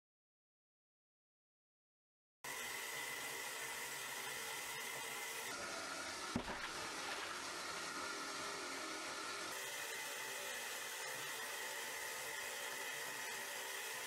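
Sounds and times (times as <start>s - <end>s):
short thump: 6.3s - 6.7s.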